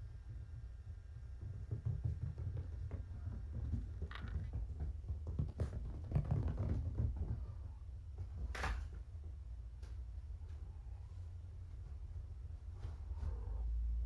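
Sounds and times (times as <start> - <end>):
paws thudding on rubber mats: 1.1 - 10.0.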